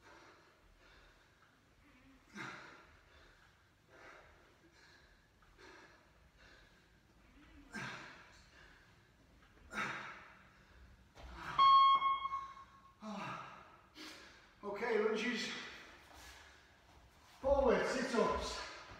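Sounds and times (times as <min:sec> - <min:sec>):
man breathing hard: 0:00.0 - 0:11.6
interval timer beep: 0:11.5 - 0:12.9.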